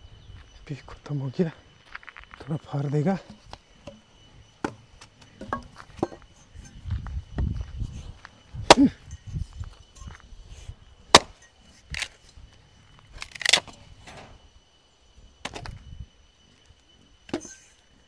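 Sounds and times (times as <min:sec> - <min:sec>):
axe chopping wood: 0:08.6 - 0:09.0, 0:11.1 - 0:11.4
wood cracking apart: 0:13.2 - 0:13.8.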